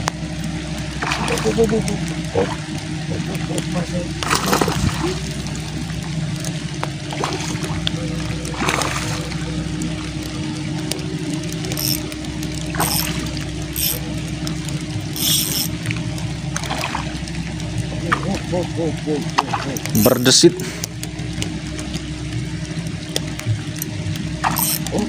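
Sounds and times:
heavy rain on water: 0:00.0 - 0:25.0
steady low hum: 0:00.0 - 0:25.0
fishing reel drag rasping: 0:11.7 - 0:14.0, 0:15.1 - 0:15.8, 0:23.8 - 0:25.0.

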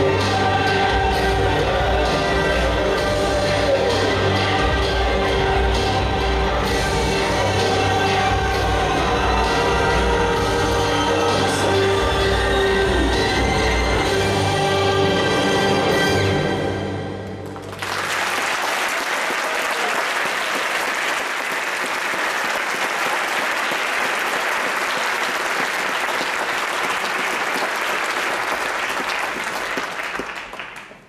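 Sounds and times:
audience applause: 0:17.4 - 0:31.0.

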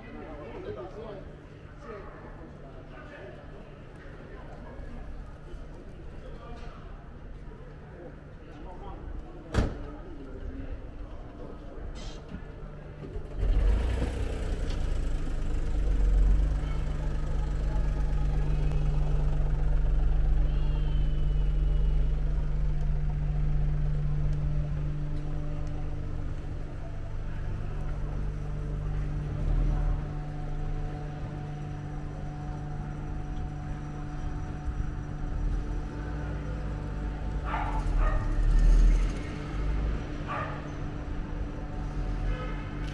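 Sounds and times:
vehicle engine idling: 0:12.8 - 0:42.9.

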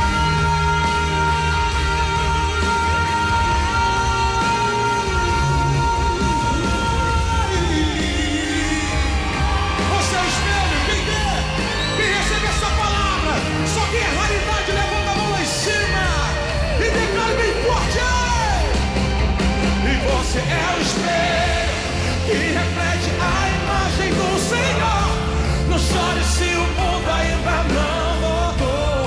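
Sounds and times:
singer shouting into microphone: 0:00.0 - 0:18.8
live band playing pop-rock: 0:00.0 - 0:29.0.

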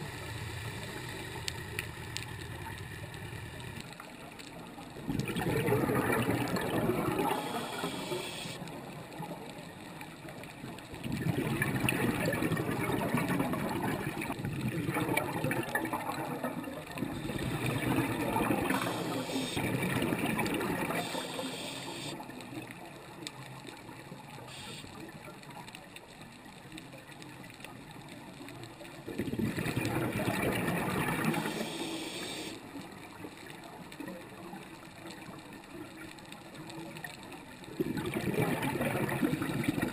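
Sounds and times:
diver's exhaled bubbles gurgling: 0:05.0 - 0:08.8, 0:10.9 - 0:22.1, 0:29.0 - 0:32.5, 0:37.7 - 0:39.9.

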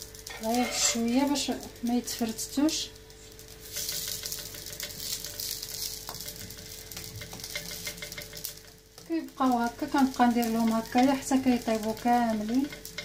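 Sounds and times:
flatbreads sizzling in hot oil: 0:00.0 - 0:13.0
metal spatula clicking and scraping: 0:00.2 - 0:01.1, 0:03.4 - 0:08.8, 0:09.8 - 0:13.0.

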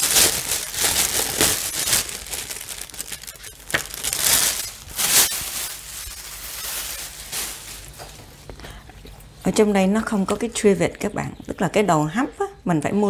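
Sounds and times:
paper crinkling and rustling: 0:00.0 - 0:08.7.

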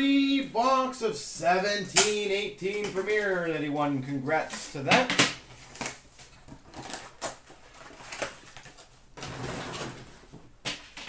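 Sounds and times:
packaging rustling: 0:05.4 - 0:11.0.

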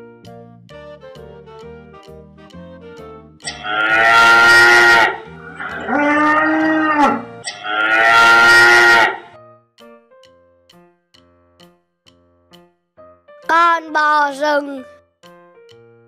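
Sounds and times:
cow mooing: 0:03.5 - 0:09.3.

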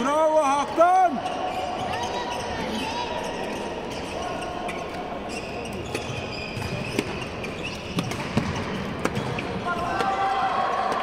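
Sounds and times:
voices chattering: 0:00.0 - 0:07.9
shoes squeaking on court floor: 0:01.1 - 0:09.9
racket striking shuttlecock: 0:07.9 - 0:09.4.

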